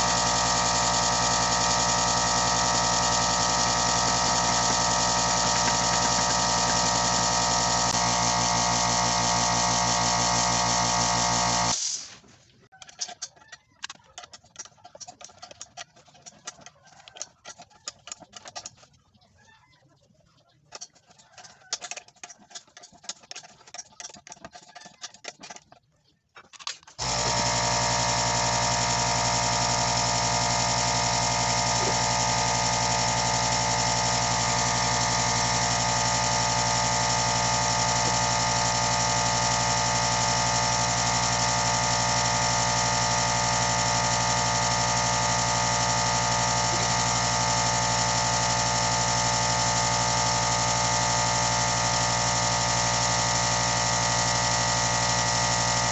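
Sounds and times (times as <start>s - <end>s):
air compressor running: 0.0s - 12.2s, 26.9s - 55.9s
screwdriver clicking and scraping: 12.7s - 19.2s, 20.6s - 28.2s.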